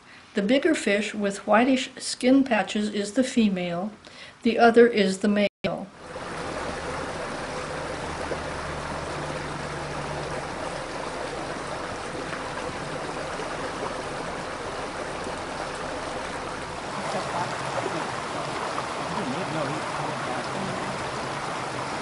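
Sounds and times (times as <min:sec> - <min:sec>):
creek running over stones: 0:05.9 - 0:22.0.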